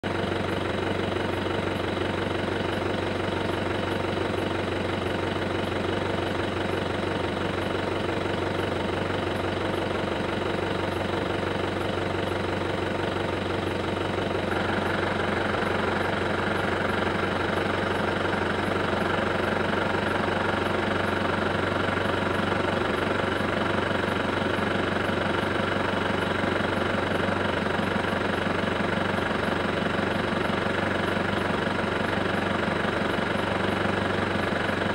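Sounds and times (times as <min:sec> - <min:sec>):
engine idling: 0:00.0 - 0:34.9.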